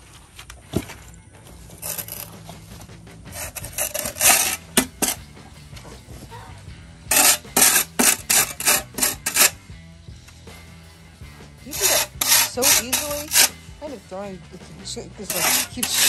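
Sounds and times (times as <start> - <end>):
shovel scraping dirt on concrete: 0.2 - 6.2, 7.1 - 9.6, 11.3 - 14.0, 14.9 - 16.0.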